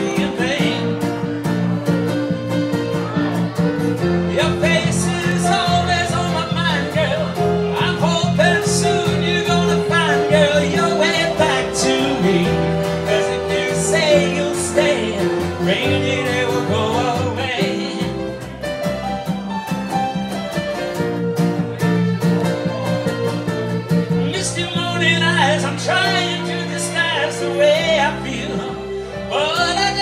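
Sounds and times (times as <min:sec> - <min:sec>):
man singing: 0:00.0 - 0:01.8, 0:03.0 - 0:18.8, 0:24.1 - 0:30.0
acoustic guitar: 0:00.0 - 0:30.0
electric keyboard: 0:00.0 - 0:30.0.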